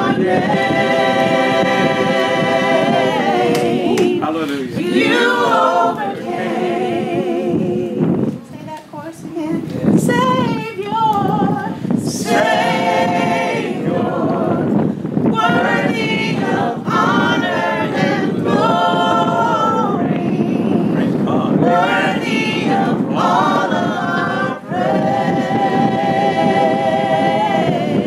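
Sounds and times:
group singing unaccompanied: 0:00.0 - 0:08.4, 0:09.6 - 0:28.0
woman's voice leading singing: 0:04.8 - 0:17.9.

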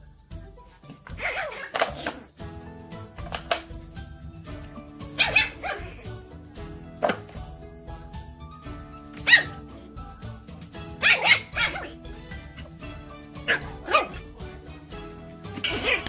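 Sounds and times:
background music: 0:00.0 - 0:16.0
puppies yapping: 0:01.1 - 0:02.2, 0:05.0 - 0:08.0, 0:09.1 - 0:14.3.

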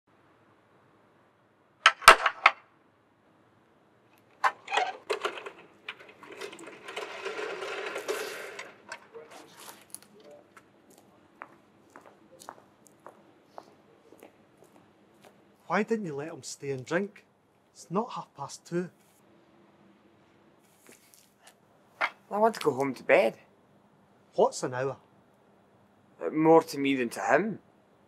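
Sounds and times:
door bolt clanking and clicking: 0:04.4 - 0:09.0
rattling scrape: 0:04.4 - 0:09.8.

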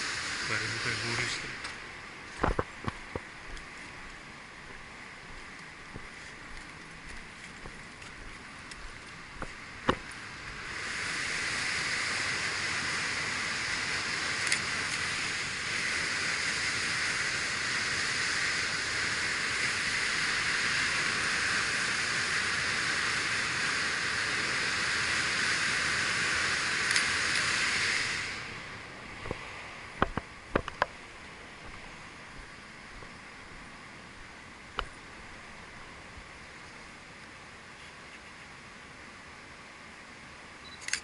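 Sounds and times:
water rushing from dam: 0:07.0 - 0:32.2
sharp clicks: 0:26.8 - 0:27.5, 0:40.7 - 0:41.0.

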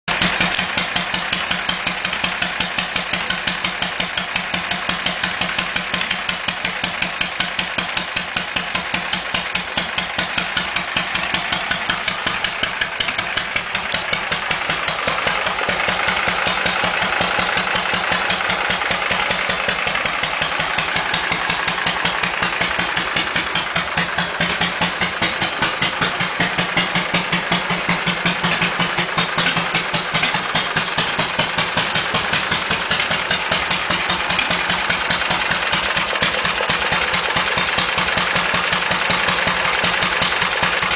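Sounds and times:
motorcycle engine idling: 0:00.0 - 0:40.9.

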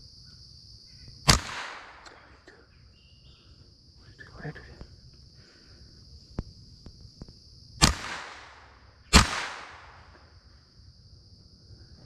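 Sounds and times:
insects buzzing: 0:00.0 - 0:12.0
shotgun shots echoing: 0:01.3 - 0:02.3, 0:07.8 - 0:10.2.

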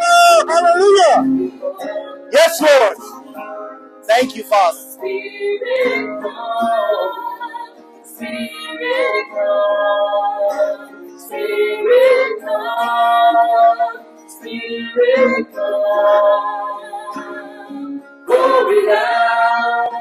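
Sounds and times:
sustained accompaniment: 0:00.0 - 0:03.3, 0:04.1 - 0:04.9
person singing slow phrases: 0:02.3 - 0:03.1, 0:04.1 - 0:04.9.

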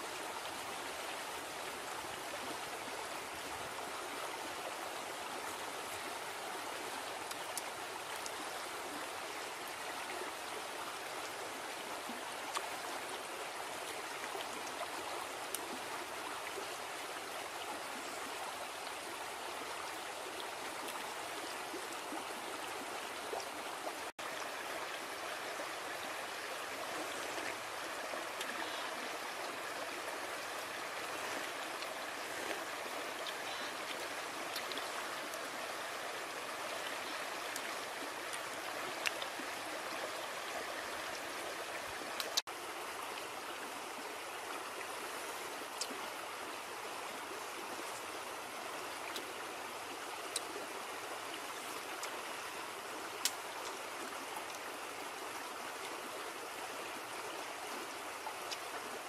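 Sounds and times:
running water rushing: 0:00.0 - 0:59.0
faint clicks: 0:42.2 - 0:42.4, 0:53.2 - 0:53.8.

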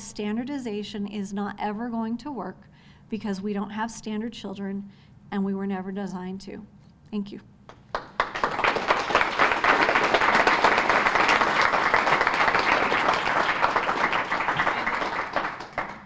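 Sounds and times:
audience applauding: 0:07.9 - 0:16.0.

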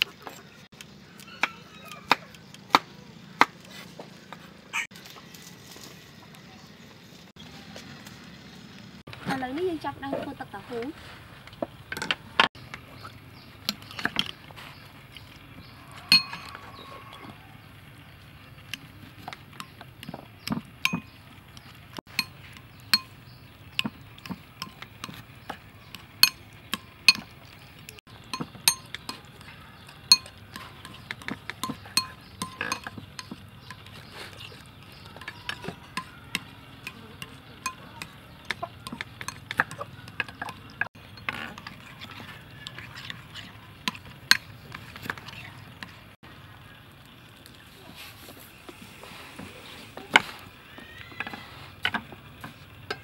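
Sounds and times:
metal spoon scraping a bowl: 0:16.0 - 0:17.3, 0:22.1 - 0:46.0.

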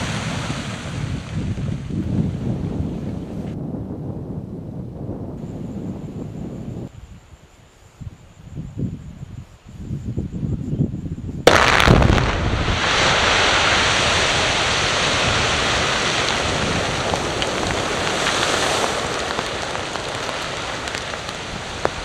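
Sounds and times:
explosive blast bang: 0:11.5 - 0:14.8
sharp cracks: 0:11.5 - 0:22.0.

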